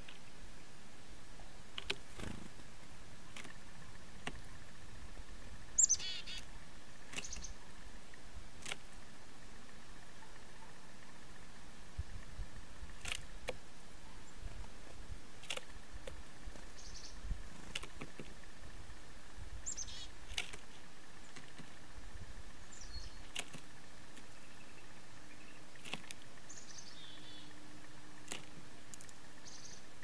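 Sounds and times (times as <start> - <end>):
bird pecking on wood: 1.8 - 2.2, 3.3 - 3.6, 15.4 - 16.7, 17.6 - 18.4, 20.3 - 20.7, 21.3 - 21.8, 23.3 - 24.3, 25.8 - 26.3, 28.2 - 29.1
high bird chirps: 5.8 - 6.5, 7.2 - 7.6, 19.6 - 20.1, 26.5 - 27.6, 29.4 - 29.9.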